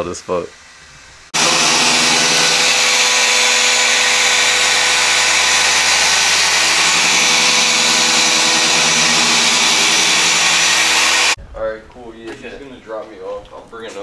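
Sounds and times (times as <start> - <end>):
machine polisher whine: 1.4 - 11.4.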